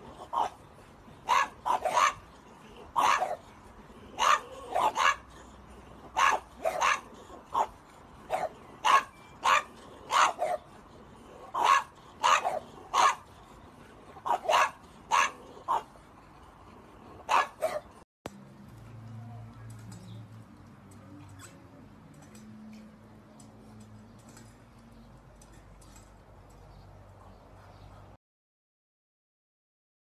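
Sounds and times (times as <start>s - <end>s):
dogs barking: 0.0s - 18.0s.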